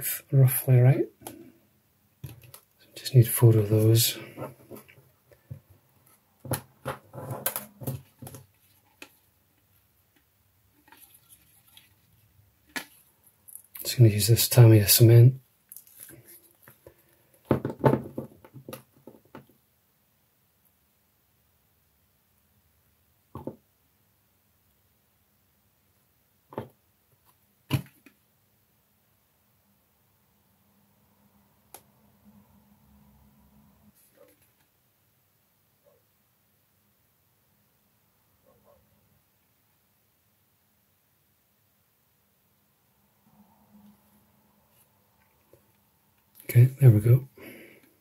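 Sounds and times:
small objects knocking on workbench: 17.4 - 19.5, 23.3 - 23.6.

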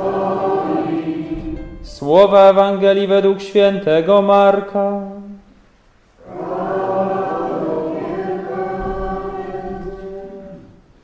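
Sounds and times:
choir singing a chant: 0.0 - 1.6, 6.2 - 10.8.

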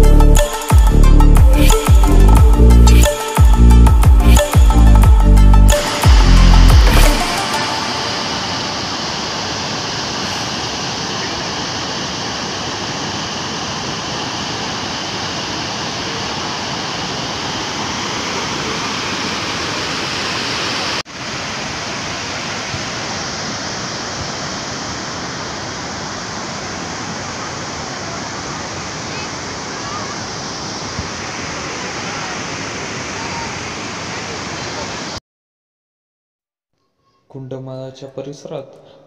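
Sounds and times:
water rushing over a weir: 5.8 - 35.2.

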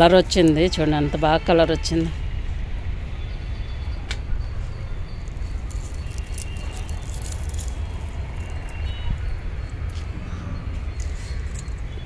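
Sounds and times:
low rumble: 4.3 - 11.8
plant leaves rustling and crackling: 5.2 - 10.1, 10.9 - 11.9.

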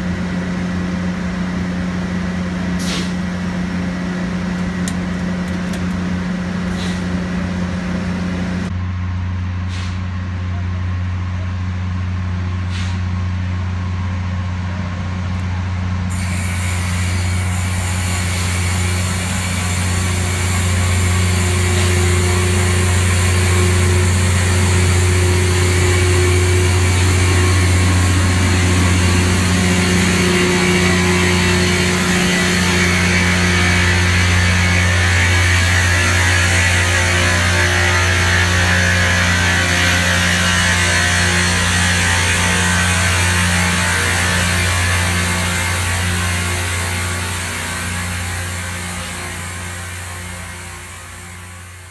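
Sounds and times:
diesel train engines droning: 0.0 - 51.9
loud hiss: 16.1 - 36.8.

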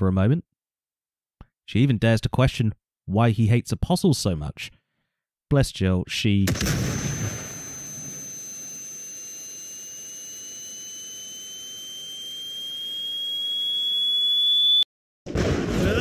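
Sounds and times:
high-pitched ringing tone: 6.6 - 14.9
higher tone: 6.6 - 14.9.

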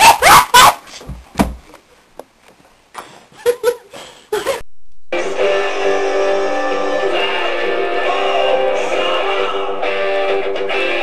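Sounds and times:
dull thump: 1.0 - 1.7
music: 5.1 - 11.0.

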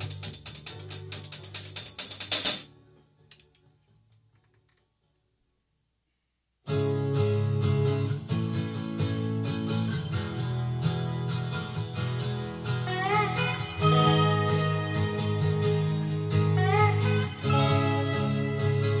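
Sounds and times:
drum kit playing: 0.0 - 2.7
backing track with strummed guitar: 0.0 - 3.3, 6.7 - 19.0.

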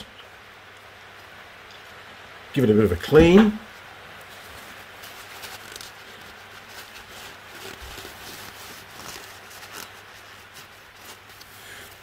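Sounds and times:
rag rubbing between gloved hands: 4.3 - 12.0.

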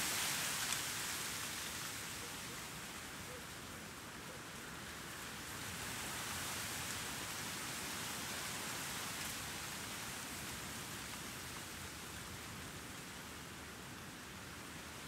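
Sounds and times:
breeze hiss: 0.0 - 3.0.

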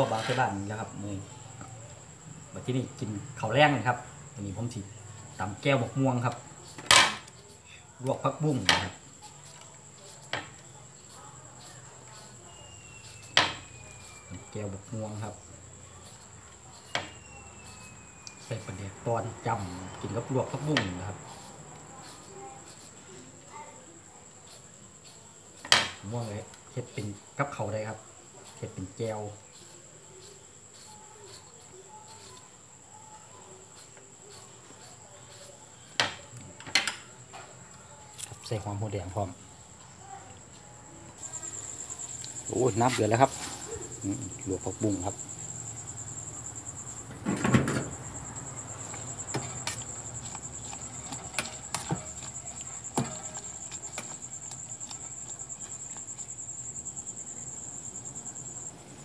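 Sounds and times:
crickets chirping: 0.0 - 59.0
mango being shredded: 47.9 - 58.1.

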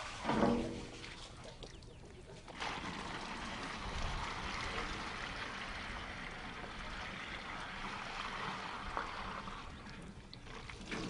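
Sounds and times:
water pouring into plastic container: 2.5 - 11.0.

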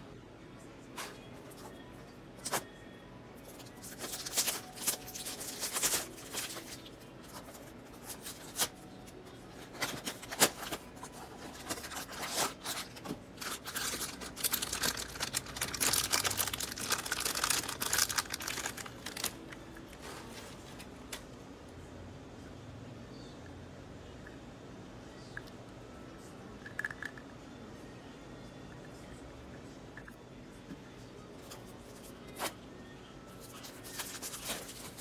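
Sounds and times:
foil bag crinkling: 3.5 - 8.8, 9.6 - 20.9, 33.4 - 35.0
packaging being torn open: 11.6 - 19.6.

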